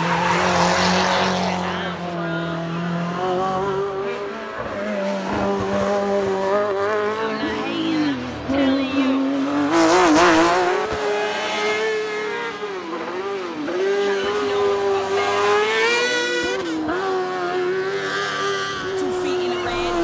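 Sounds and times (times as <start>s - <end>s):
racing car engine revving: 0.0s - 20.0s.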